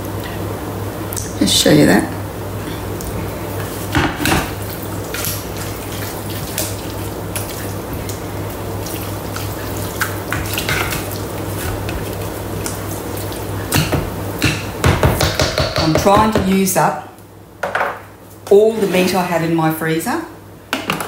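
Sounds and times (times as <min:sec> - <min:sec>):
steady low hum: 0:00.0 - 0:20.8
spatula squishing and scraping mince: 0:05.1 - 0:13.9.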